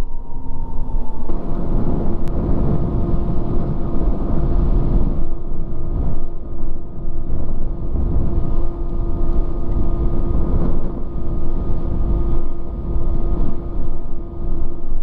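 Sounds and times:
motorcycle engine rumbling: 0.0 - 14.4.

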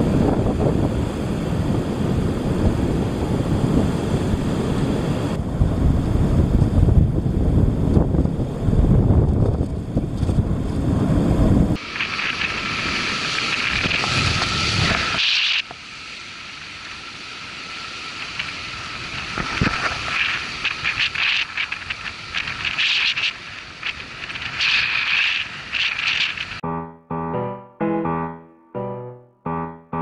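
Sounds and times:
wind buffeting microphone: 0.0 - 15.2, 18.1 - 26.6
waves breaking on rocks: 11.8 - 15.7.

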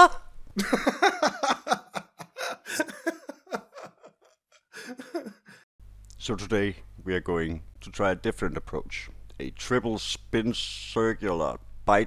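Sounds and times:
cartoon bear laughing: 0.6 - 5.6.

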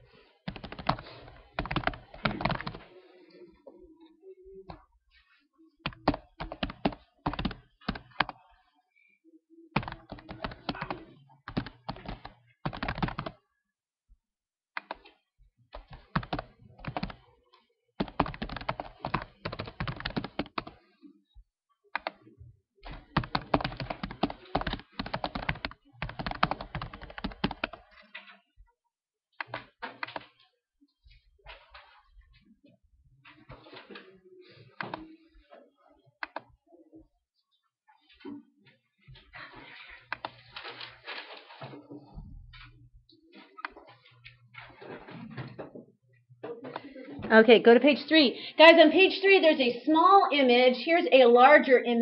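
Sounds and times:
computer keyboard typing: 0.5 - 2.9, 5.8 - 8.4, 9.7 - 13.4, 14.8 - 17.3, 18.0 - 20.8, 22.0 - 22.2, 22.8 - 28.1, 29.4 - 30.4, 36.2 - 36.5, 40.1 - 40.9.

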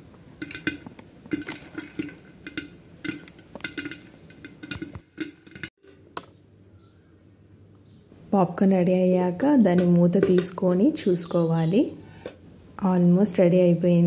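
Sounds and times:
popcorn popping in a metal pot: 0.1 - 6.3, 9.6 - 11.0.

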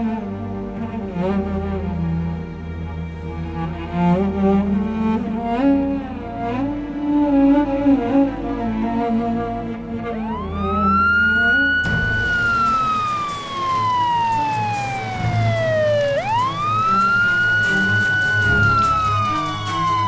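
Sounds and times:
background music: 0.0 - 20.0
police siren wailing: 10.0 - 20.0.

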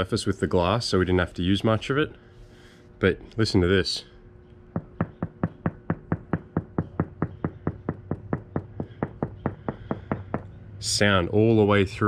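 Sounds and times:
finger tapping on boat hull: 4.7 - 10.5.

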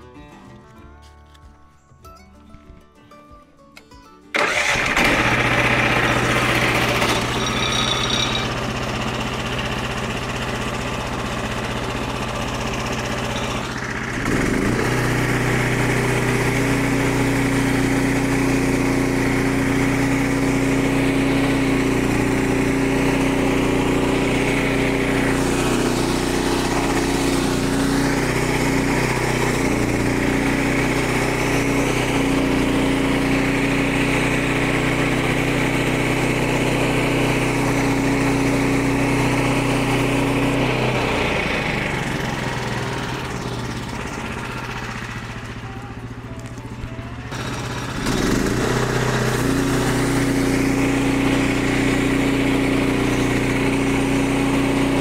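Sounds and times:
small gasoline engine running: 4.3 - 55.0
band blade cutting log: 5.0 - 8.7.

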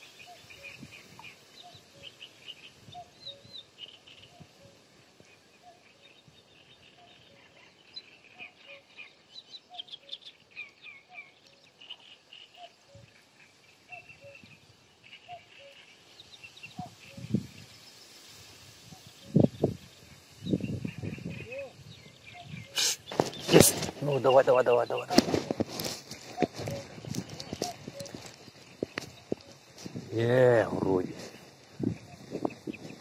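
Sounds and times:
small birds chirping: 0.0 - 33.0
cuckoo calling: 13.9 - 14.6, 15.2 - 17.5, 20.5 - 30.1, 31.7 - 33.0.

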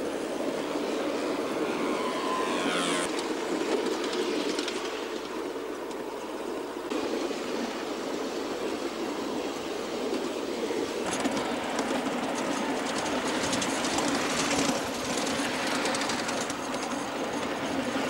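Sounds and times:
train wheels rumbling on rails: 0.0 - 18.0
high-pitched sweep: 1.2 - 3.2.

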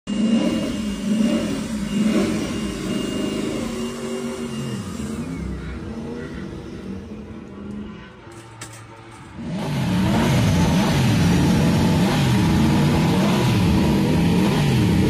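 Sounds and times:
motorcycle engine revving: 0.1 - 15.0.

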